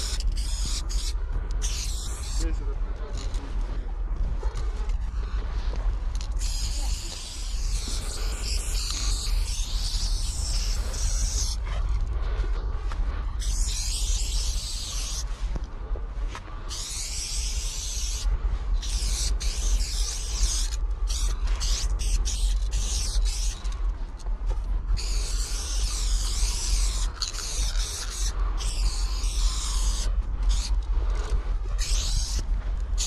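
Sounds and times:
spray paint can hissing: 0.0 - 2.4, 6.4 - 11.6, 13.4 - 15.3, 16.7 - 18.2, 18.8 - 23.7, 25.0 - 30.7, 31.8 - 32.4
low rumble: 0.0 - 33.0.

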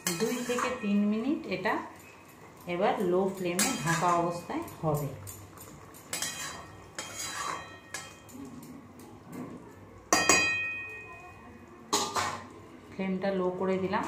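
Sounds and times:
utensils scraping a metal pot: 0.0 - 1.0, 3.3 - 4.5, 5.1 - 8.7.

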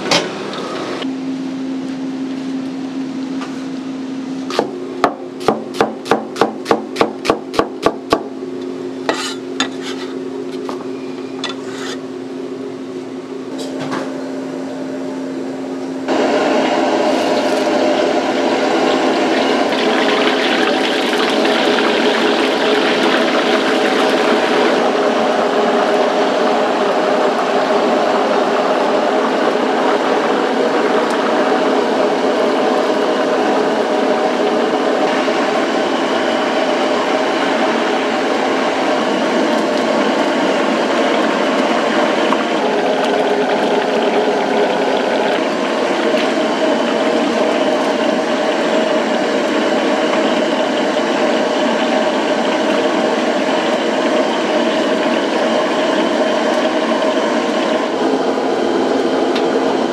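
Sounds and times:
mechanical hum: 0.0 - 59.9
oil sizzling and bubbling: 16.1 - 59.9.

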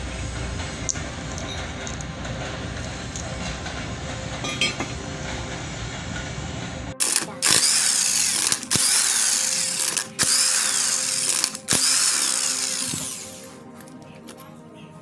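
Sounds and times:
impact wrench spinning and hammering: 7.0 - 13.5.

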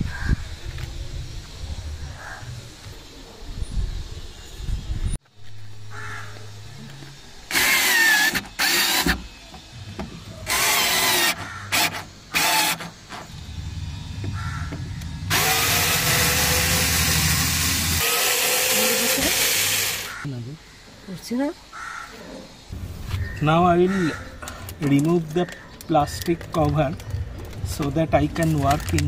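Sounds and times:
cordless drill running: 7.5 - 9.3, 10.4 - 13.6, 15.2 - 20.2.

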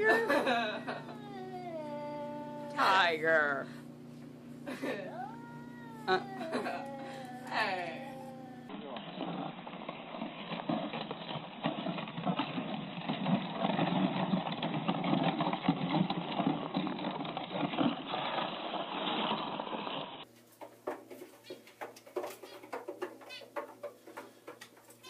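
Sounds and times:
sled runners scraping snow: 8.8 - 20.3.

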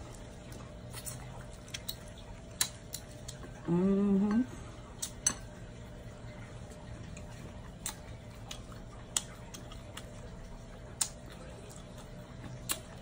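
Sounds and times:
clicks and taps of eating: 1.0 - 3.5, 7.1 - 10.2, 10.9 - 13.0
person humming: 3.6 - 4.7.

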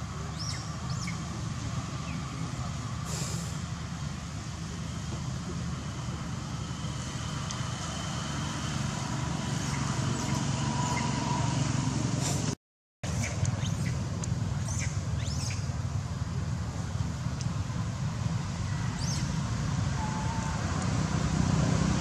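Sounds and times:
road traffic rumble: 0.0 - 22.0
short high squeaks: 9.5 - 11.5.

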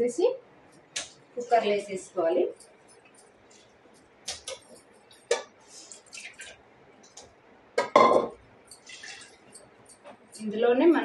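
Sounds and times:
water pouring into pot: 8.8 - 9.4
splashing and scraping: 8.8 - 9.5.

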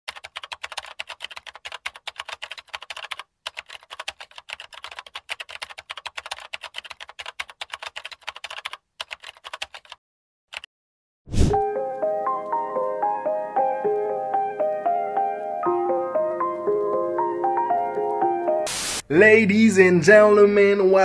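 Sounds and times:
computer keyboard typing: 0.1 - 10.7.

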